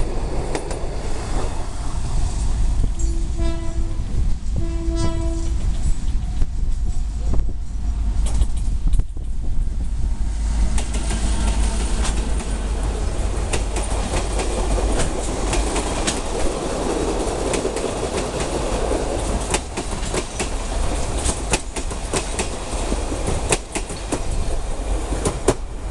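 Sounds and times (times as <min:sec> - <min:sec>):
train wheels rumbling on rails: 0:00.0 - 0:25.9
wheels clicking over rail joints: 0:10.7 - 0:25.8.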